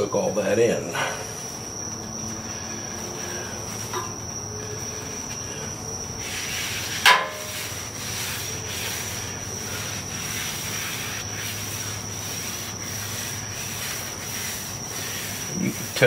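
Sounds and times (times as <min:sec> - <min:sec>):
paper towel wiping a griddle: 0:06.2 - 0:16.0
tongs clinking on metal griddle: 0:07.0 - 0:07.5.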